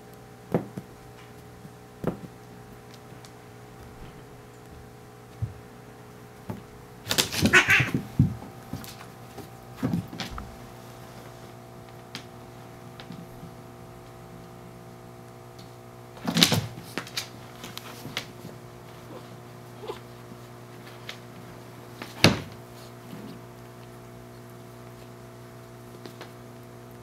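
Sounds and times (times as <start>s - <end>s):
cats scuffling: 0.6s - 14.6s, 15.2s - 27.0s
cat vocalisation: 7.4s - 8.0s, 19.0s - 20.2s.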